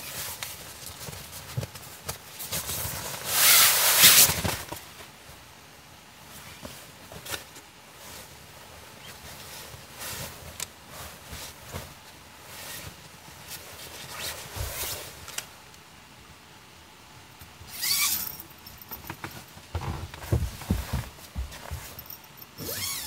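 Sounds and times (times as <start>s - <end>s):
handling clicks and rustles: 17.4s - 23.0s.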